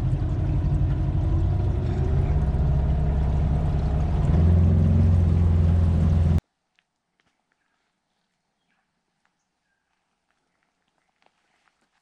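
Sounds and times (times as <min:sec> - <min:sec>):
outboard motor droning: 0:00.0 - 0:06.4.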